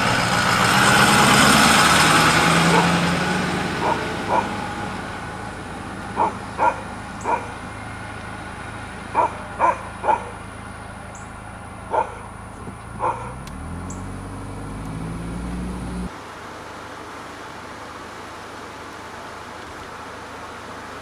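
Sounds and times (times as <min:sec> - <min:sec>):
pickup truck engine: 0:00.0 - 0:16.2
low engine hum: 0:00.0 - 0:21.0
dog barking: 0:02.7 - 0:03.0, 0:03.8 - 0:04.6, 0:06.2 - 0:07.6, 0:09.1 - 0:10.4, 0:11.9 - 0:12.3, 0:13.0 - 0:13.4.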